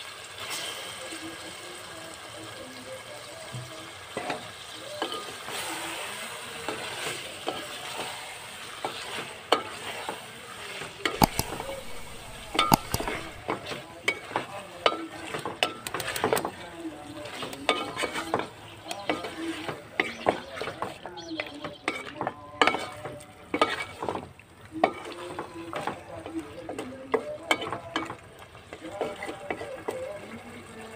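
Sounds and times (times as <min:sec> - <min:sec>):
chicken sizzling in hot oil: 0:00.0 - 0:11.4, 0:12.4 - 0:30.9
spatula knocking and scraping pot: 0:11.2 - 0:13.4.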